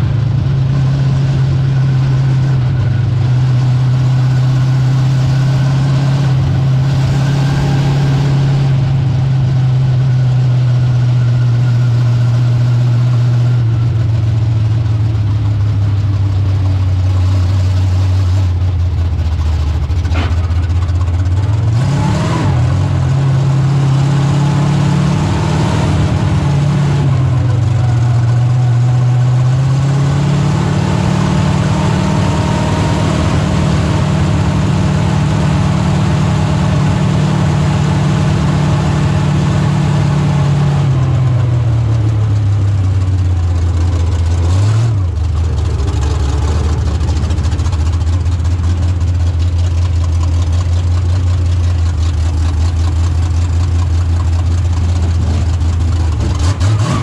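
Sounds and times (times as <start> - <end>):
race car engine from cockpit: 0.0 - 57.0.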